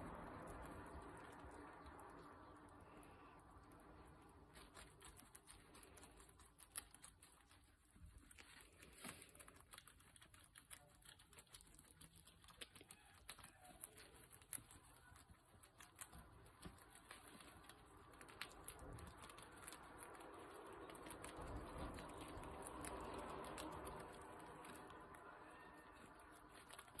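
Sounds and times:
guinea pig chewing greens: 0.0 - 27.0
soft rustling: 3.8 - 19.0.

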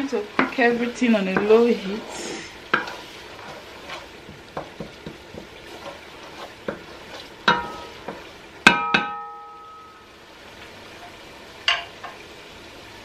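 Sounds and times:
faint sizzle of cooking: 0.0 - 13.0
spoon knocking against pot: 4.3 - 5.5, 6.7 - 9.4.

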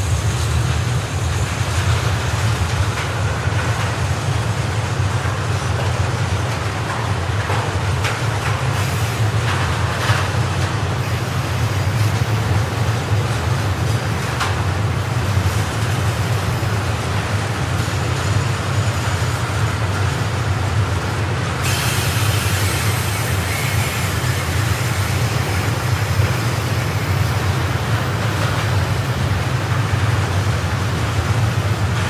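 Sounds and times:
train wheels rumbling on rails: 0.0 - 32.0
bright hiss: 21.6 - 27.3.

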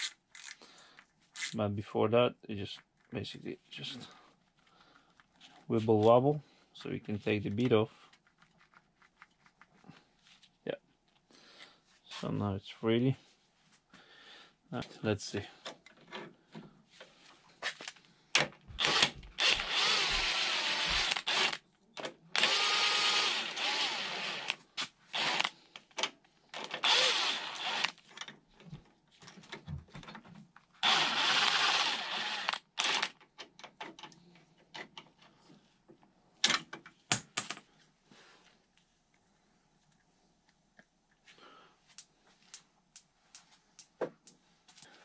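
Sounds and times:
power tool running: 18.8 - 21.6, 22.4 - 24.6, 25.2 - 25.5, 26.7 - 27.9, 30.8 - 33.1.

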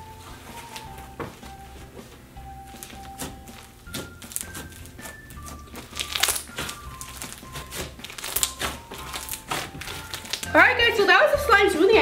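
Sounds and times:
soft background music: 0.0 - 12.0
slime crackling and squelching: 2.7 - 10.8.

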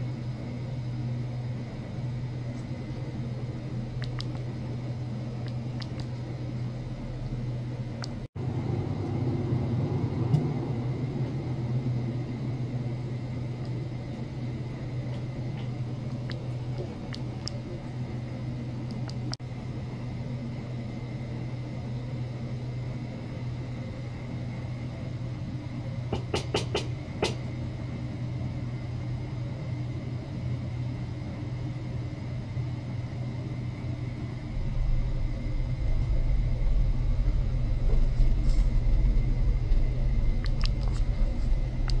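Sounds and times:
steady low hum: 0.0 - 42.0
deep rumble: 2.1 - 17.9, 33.8 - 42.0
sharp clicks: 4.0 - 4.5
thin high whine: 32.4 - 42.0.

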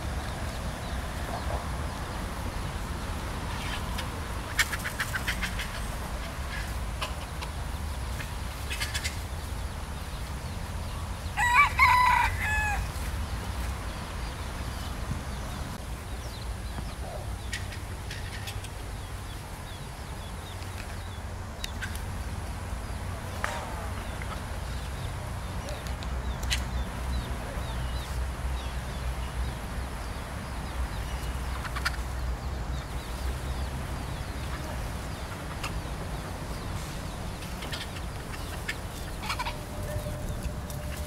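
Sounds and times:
rooster crowing: 11.4 - 12.9
rooster clucking: 36.8 - 41.0.

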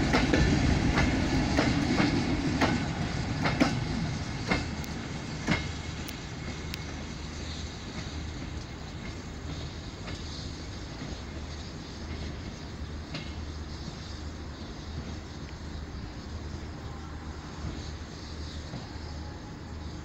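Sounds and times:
train wheels clacking: 0.0 - 15.8
train rumble: 0.0 - 20.0.

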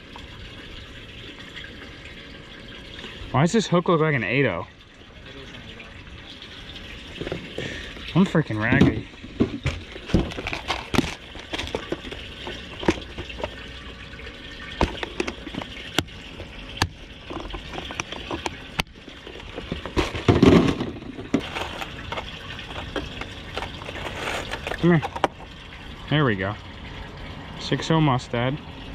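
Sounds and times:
trickle of running water: 0.0 - 28.9
plastic tackle box clicks and knocks: 8.7 - 12.2, 12.8 - 13.5, 14.8 - 16.1, 19.5 - 25.4.

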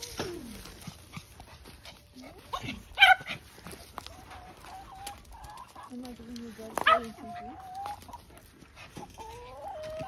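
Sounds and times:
dog barking: 3.0 - 3.3.

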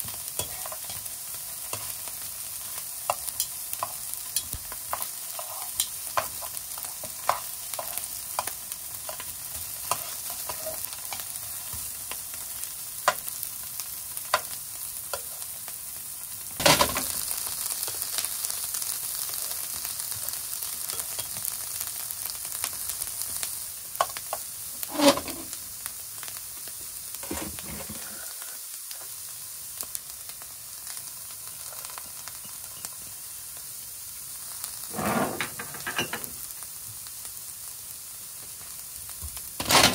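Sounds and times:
oil sizzling in frying pan: 0.0 - 39.9
metal tongs scraping pan: 9.8 - 11.3, 24.8 - 25.5, 34.9 - 36.2, 39.6 - 39.9.

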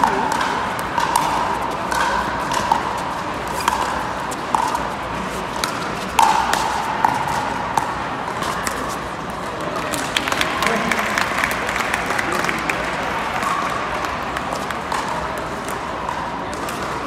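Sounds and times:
paddles hitting plastic ball: 5.6 - 8.9.

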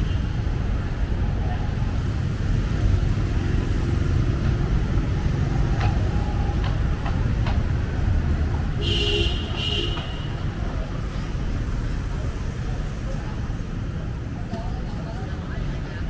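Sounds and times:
traffic on wet street: 0.0 - 16.0
vehicle horn beeps: 8.8 - 10.4.

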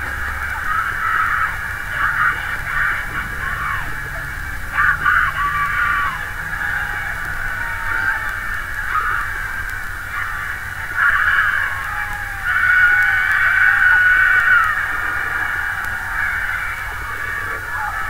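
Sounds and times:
crowd cheering and screaming: 0.0 - 18.0
long high scream: 4.7 - 18.0.

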